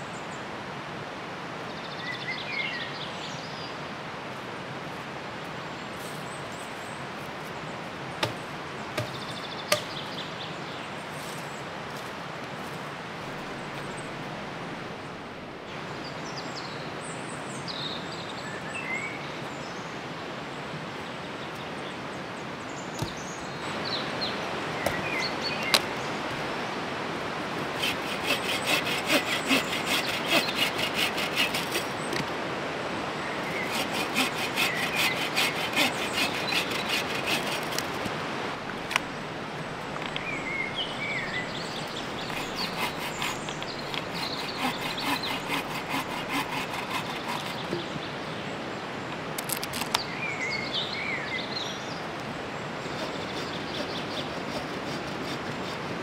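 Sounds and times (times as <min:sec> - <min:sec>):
river rushing: 0:22.4 - 0:44.1
fast rasping scraping: 0:23.0 - 0:23.2, 0:24.8 - 0:25.9, 0:27.6 - 0:32.3, 0:33.5 - 0:38.2, 0:41.4 - 0:47.8, 0:52.9 - 0:56.0.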